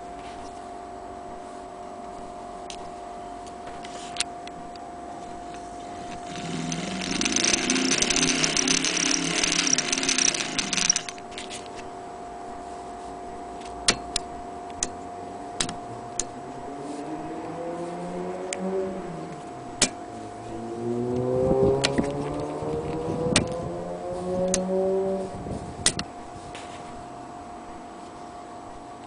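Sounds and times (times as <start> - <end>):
sewing machine whirring: 5.8 - 11.6
sharp metal clicks: 6.0 - 11.6.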